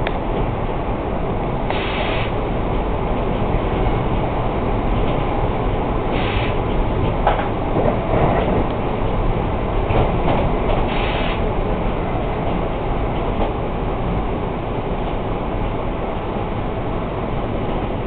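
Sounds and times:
train rumbling on rails: 0:00.0 - 0:18.0
short high-pitched hisses: 0:06.2 - 0:06.6.

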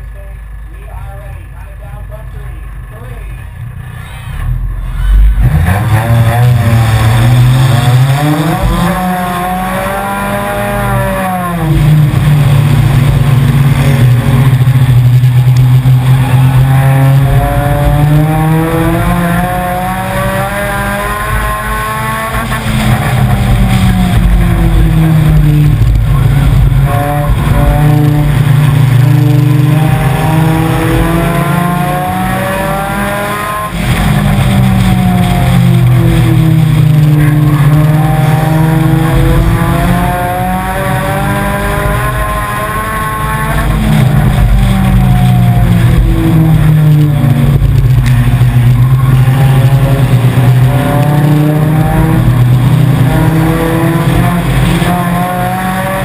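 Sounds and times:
race car engine accelerating: 0:04.4 - 0:56.0.

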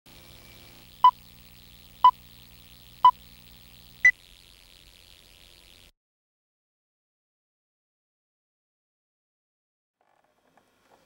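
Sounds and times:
faint hum: 0:00.1 - 0:05.9.

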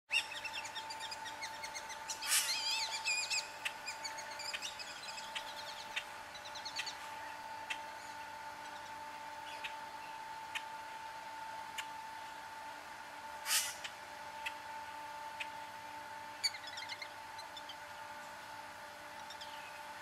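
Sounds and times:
birds chirping and singing: 0:00.1 - 0:10.6, 0:16.4 - 0:18.2, 0:19.1 - 0:20.0
faint steady tone: 0:00.2 - 0:20.0.

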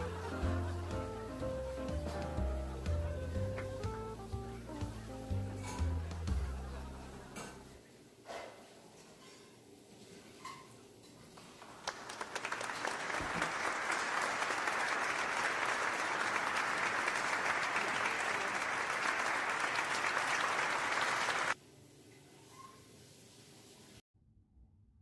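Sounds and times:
applause: 0:00.0 - 0:02.9, 0:11.4 - 0:21.6.

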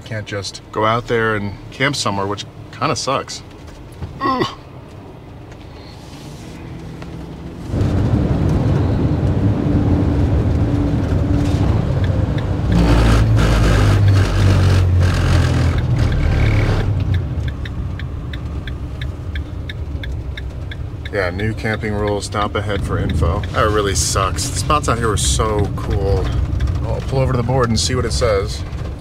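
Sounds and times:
van engine and road noise: 0:00.0 - 0:29.0
turn signal ticking: 0:10.4 - 0:29.0.

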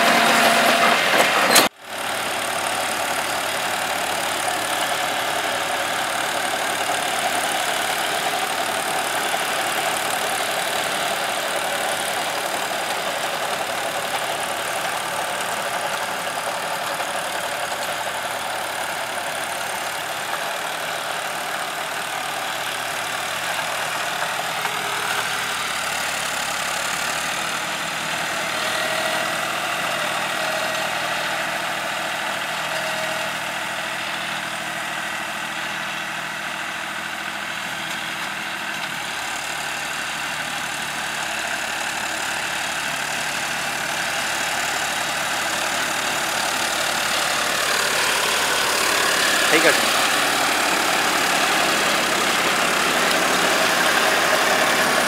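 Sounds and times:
rotavator tilling soil: 0:00.0 - 0:21.8, 0:40.8 - 0:55.0
tractor diesel engine running: 0:00.0 - 0:55.0.

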